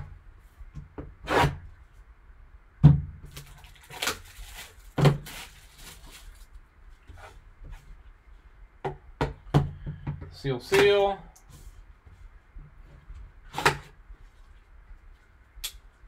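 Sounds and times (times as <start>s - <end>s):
plastic wrap rustling: 3.3s - 7.4s.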